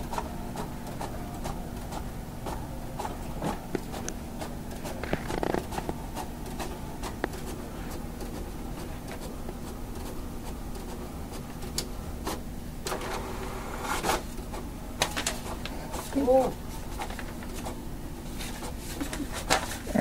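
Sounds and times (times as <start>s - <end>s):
paper rustling under cat's paws: 16.8s - 17.7s, 18.3s - 19.9s.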